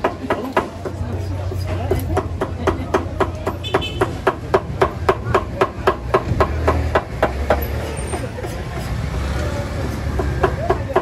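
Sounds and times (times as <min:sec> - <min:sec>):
rapid hammering: 0:02.1 - 0:07.6.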